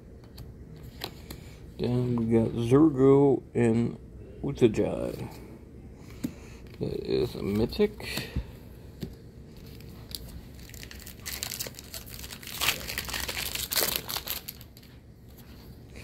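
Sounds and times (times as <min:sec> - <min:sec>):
plastic foil wrapper crinkling: 0:09.6 - 0:14.9.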